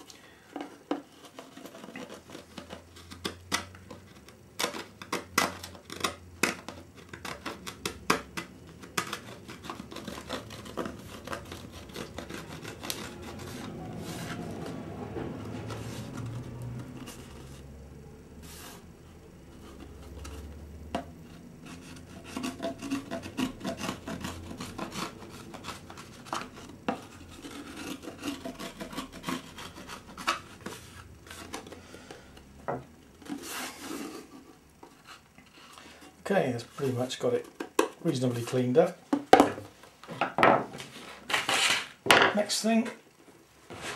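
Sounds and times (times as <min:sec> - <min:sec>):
blade scraping fibreglass: 0:01.0 - 0:17.6, 0:21.2 - 0:31.8.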